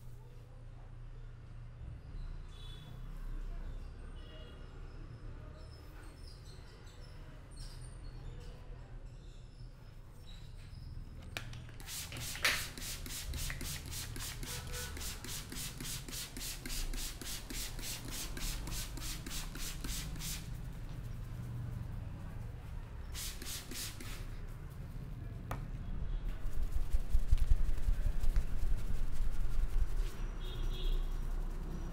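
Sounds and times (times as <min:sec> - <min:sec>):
hands rubbing damp hair: 0:11.8 - 0:20.5, 0:26.5 - 0:30.2.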